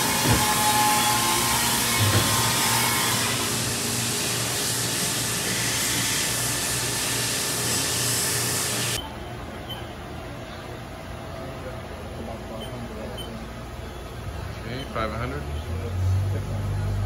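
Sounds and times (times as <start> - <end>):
milling machine hiss and hum: 0.0 - 9.0.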